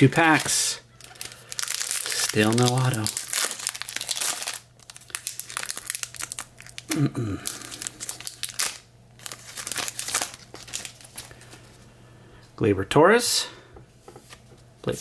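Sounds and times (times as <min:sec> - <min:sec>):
card pack wrapper crinkling and tearing: 0:00.1 - 0:11.6.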